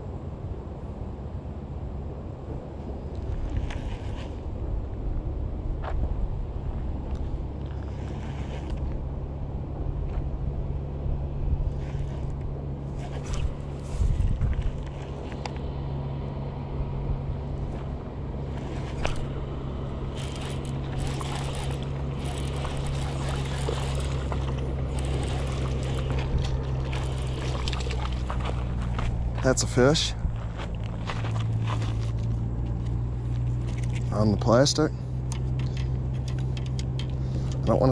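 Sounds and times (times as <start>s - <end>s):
low steady hum: 0.0s - 37.9s
wind buffeting microphone: 9.0s - 15.4s, 16.9s - 31.9s
fish splashing at surface: 20.1s - 28.8s.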